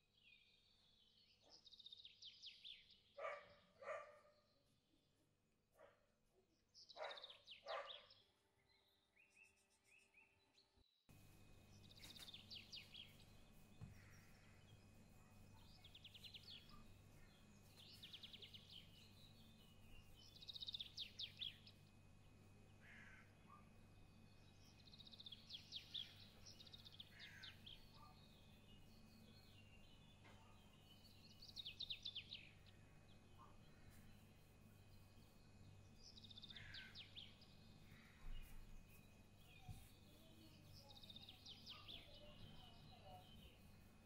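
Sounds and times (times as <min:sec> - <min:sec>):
birds chirping: 0:00.2 - 0:04.6, 0:06.8 - 0:44.0
low steady hum: 0:11.1 - 0:44.0
loud bird calls: 0:22.8 - 0:23.6, 0:27.0 - 0:28.2, 0:36.4 - 0:37.2.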